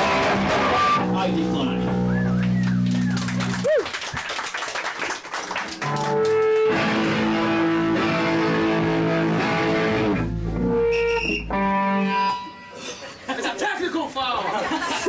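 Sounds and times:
electric guitar chords ringing: 0.0 - 2.9, 5.8 - 12.8.

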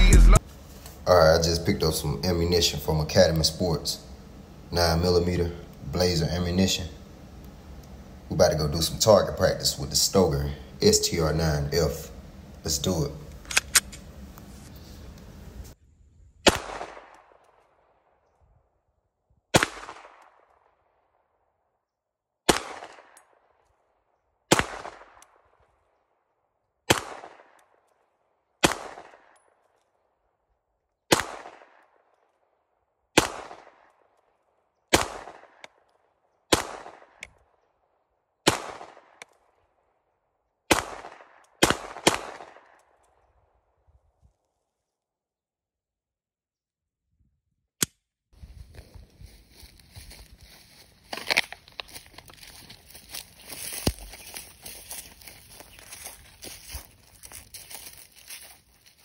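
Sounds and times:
pistol shots with echo: 16.4 - 17.4, 19.5 - 20.5, 22.5 - 23.3, 24.5 - 25.2, 26.9 - 27.6, 28.6 - 29.4, 31.1 - 32.0, 33.2 - 34.0, 34.9 - 35.8, 36.5 - 37.2, 38.4 - 39.2, 40.7 - 42.9.

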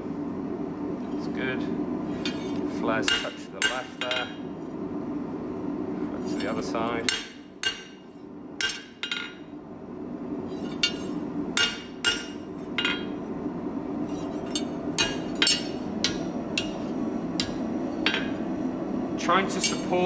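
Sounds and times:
hammer striking steel on anvil: 2.3 - 4.3, 7.0 - 9.4, 10.6 - 13.2, 14.5 - 18.4.

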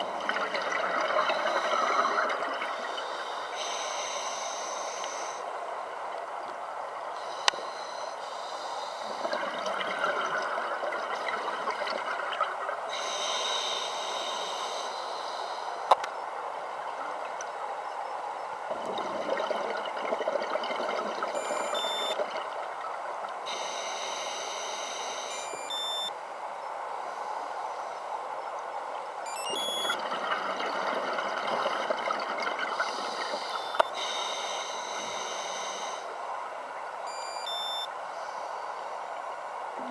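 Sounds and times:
underwater hiss: 1.3 - 5.4, 7.2 - 9.3, 12.9 - 15.8, 23.5 - 25.4, 32.7 - 36.2
short high beeps: 21.4 - 22.2, 25.3 - 26.1, 29.3 - 30.0, 37.1 - 37.9.

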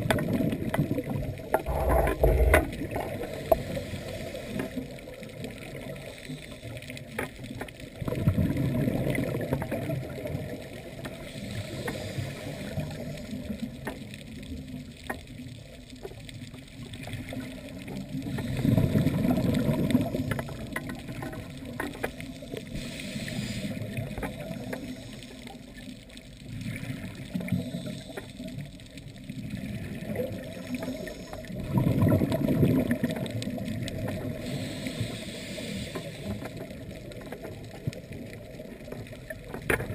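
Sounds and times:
low bubbling surges: 1.3 - 3.5
underwater hiss: 1.6 - 7.1, 9.3 - 13.7, 17.0 - 25.9, 26.5 - 37.3.

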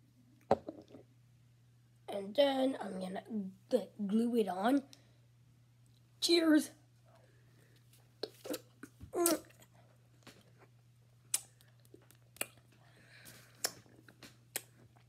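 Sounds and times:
boy chewing gummy candy: 8.2 - 15.0
wet mouth clicks and smacks: 11.3 - 12.7, 13.5 - 15.0.

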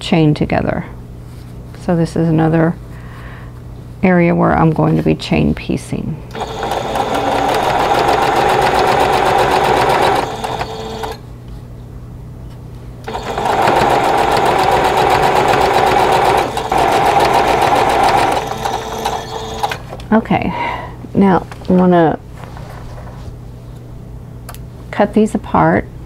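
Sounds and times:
electric sewing machine stitching: 6.3 - 11.2, 13.1 - 20.0.

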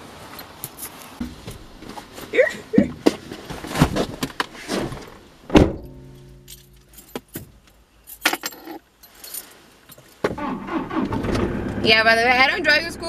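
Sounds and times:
car door slamming: 5.5 - 6.5
car keys jangling and clicking: 5.6 - 10.2.

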